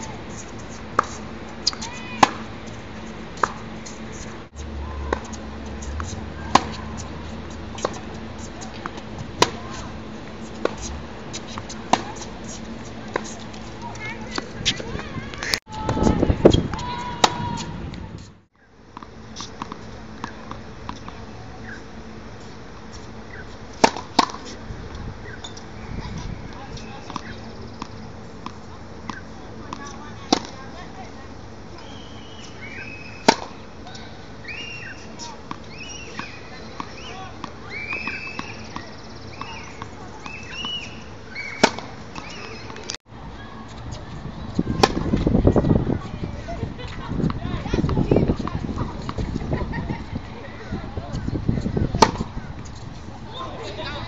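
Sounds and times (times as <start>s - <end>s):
outdoor background noise: 0.0s - 54.0s
racket striking tennis ball: 1.0s - 2.5s, 5.0s - 9.9s, 10.5s - 13.4s, 14.0s - 17.8s, 23.8s - 24.5s, 28.4s - 30.6s, 32.8s - 33.6s, 35.2s - 43.0s, 44.7s - 45.2s, 52.0s - 52.3s.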